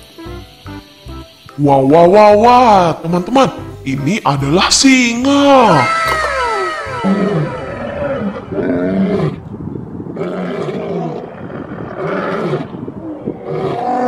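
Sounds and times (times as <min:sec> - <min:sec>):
lions roaring: 0:05.9 - 0:09.5, 0:10.2 - 0:14.0.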